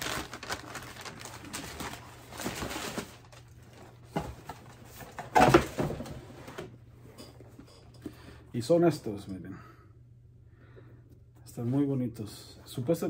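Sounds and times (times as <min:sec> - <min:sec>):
tissue paper rustling and crinkling: 0:00.0 - 0:05.2.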